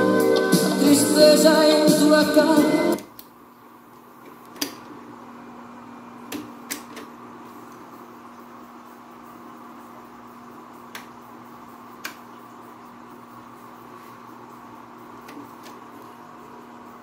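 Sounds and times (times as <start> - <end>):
music from cassette: 0.0 - 3.1
faint steady hum: 0.0 - 17.0.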